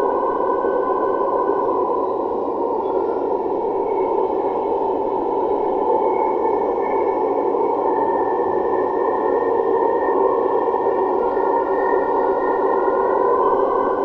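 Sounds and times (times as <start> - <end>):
faint high whine: 0.0 - 14.0.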